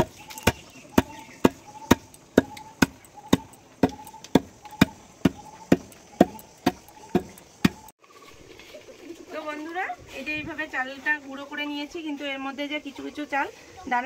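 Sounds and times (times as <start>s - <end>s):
wooden pestle pounding rice: 0.0s - 7.9s.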